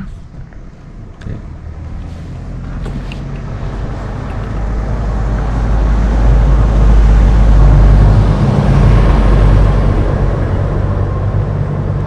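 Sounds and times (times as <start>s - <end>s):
vehicle engine and road noise: 0.0s - 12.0s.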